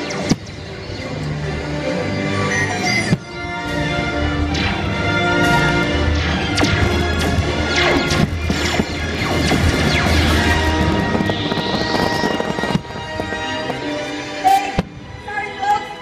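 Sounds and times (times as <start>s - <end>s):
fireworks cracking and banging: 6.3s - 15.1s
rising firework whistle: 7.7s - 14.3s.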